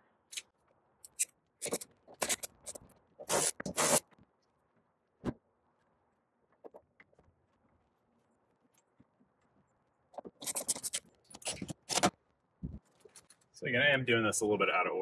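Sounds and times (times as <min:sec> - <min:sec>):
rubber seal scraping and rustling: 0:10.2 - 0:12.2.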